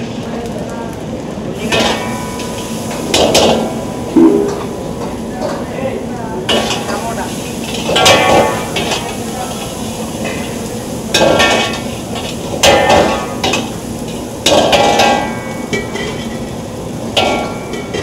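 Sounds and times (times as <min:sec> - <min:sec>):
onions frying in oil: 0:00.0 - 0:18.0
metallic clangs of ladle on pan: 0:03.2 - 0:04.8.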